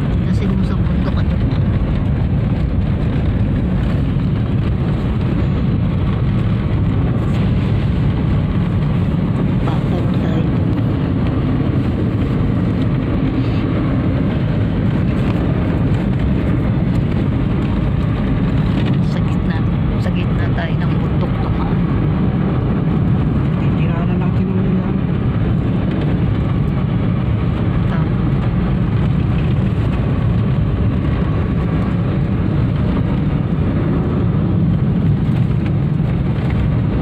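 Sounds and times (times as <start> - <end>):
car road and engine noise: 0.0 - 37.0.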